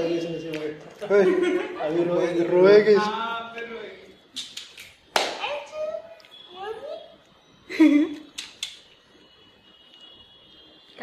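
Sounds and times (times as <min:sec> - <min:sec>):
faint high-pitched whine: 0:01.3 - 0:11.0.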